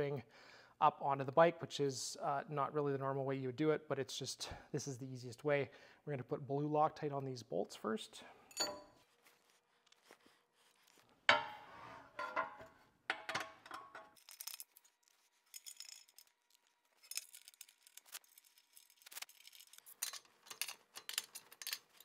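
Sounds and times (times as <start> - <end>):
metal brackets clinking on metal plate: 8.5 - 8.9, 12.2 - 14.6.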